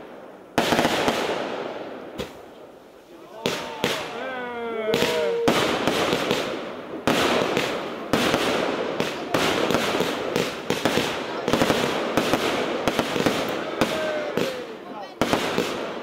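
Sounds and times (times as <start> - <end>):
firework launch thumps: 2.1 - 2.5.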